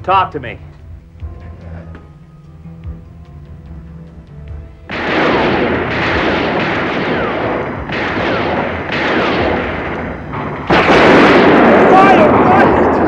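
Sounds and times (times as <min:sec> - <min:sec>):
gunfire bursts: 0:04.9 - 0:13.0.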